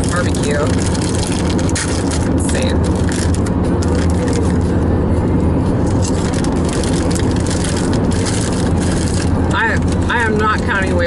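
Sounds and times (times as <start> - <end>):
car road and engine noise: 0.0 - 11.0
chip bag crinkling: 0.1 - 4.6, 6.0 - 10.1.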